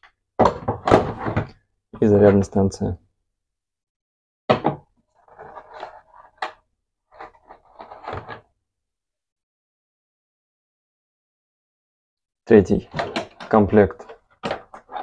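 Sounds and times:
plastic clatter of tools set down: 0:12.9 - 0:15.0.

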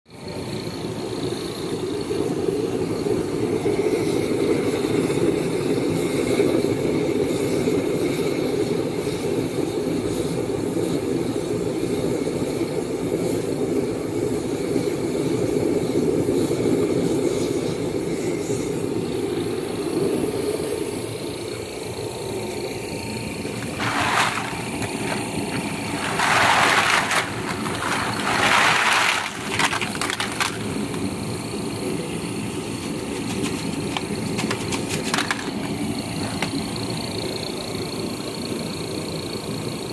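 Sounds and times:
furnace burning with low rush: 0:00.1 - 0:39.9
plastic bag rustling: 0:23.5 - 0:31.2, 0:32.8 - 0:36.5.

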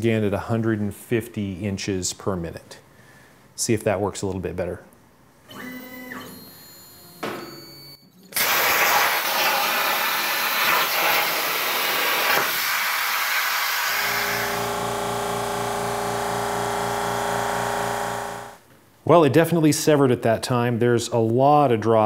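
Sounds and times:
air hissing: 0:08.4 - 0:14.6
plasma cutter arc hissing: 0:08.4 - 0:14.6.

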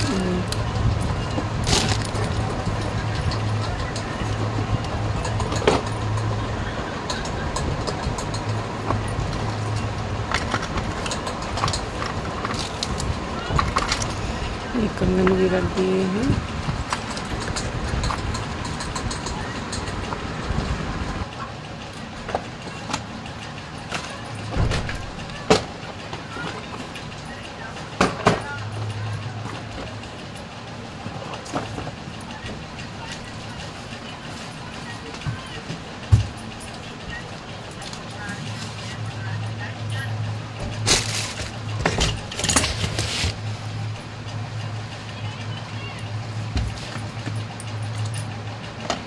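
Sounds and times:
bangles and boxes clinking: 0:00.0 - 0:20.2, 0:21.9 - 0:30.7, 0:31.3 - 0:49.0
low steady rumble: 0:00.0 - 0:49.0
steady low hum: 0:00.0 - 0:49.0
glass bangles clinking: 0:16.8 - 0:20.1.

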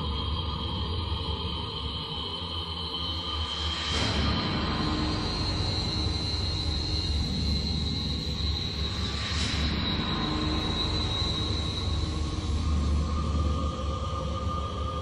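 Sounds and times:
eerie high-pitched tone: 0:03.8 - 0:15.0
low rumbling drone: 0:03.9 - 0:15.0.

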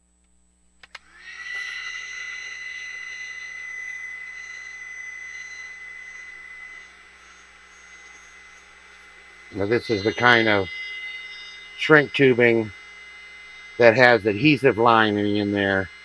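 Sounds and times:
heat gun switch click: 0:00.8 - 0:01.1
heat gun fan blowing: 0:00.8 - 0:16.0.

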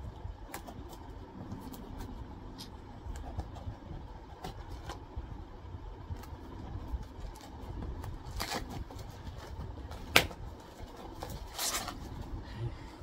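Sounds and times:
packaging rustling and tearing: 0:07.0 - 0:12.2.

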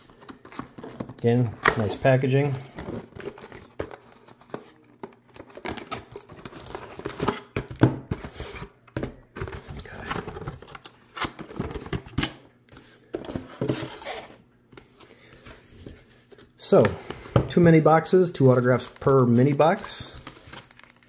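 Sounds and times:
cardboard rustling and tearing: 0:00.0 - 0:08.4, 0:18.8 - 0:21.0.

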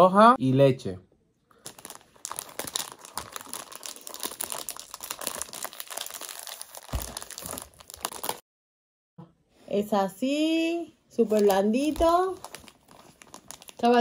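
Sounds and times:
plastic bag crinkling: 0:01.6 - 0:08.4, 0:11.3 - 0:14.0.

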